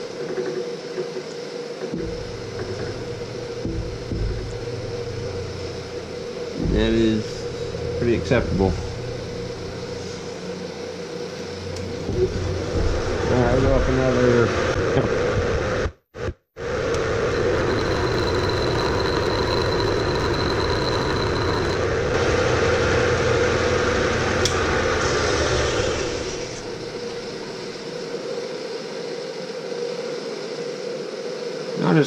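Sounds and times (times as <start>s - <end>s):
milling machine cutting metal: 16.9s - 22.2s.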